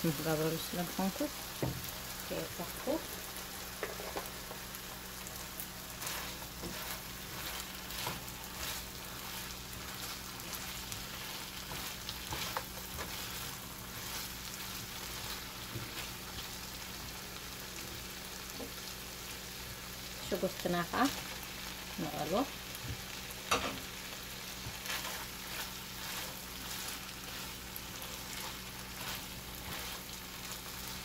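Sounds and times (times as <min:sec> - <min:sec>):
meat sizzling in a frying pan: 0:00.0 - 0:31.0
spatula stirring and scraping: 0:02.8 - 0:17.2, 0:24.4 - 0:31.0.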